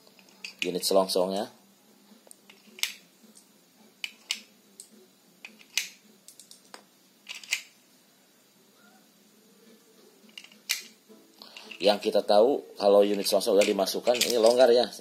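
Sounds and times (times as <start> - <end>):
metal shells clicking: 0.1 - 0.7, 2.4 - 7.7, 10.3 - 11.9, 13.1 - 14.7.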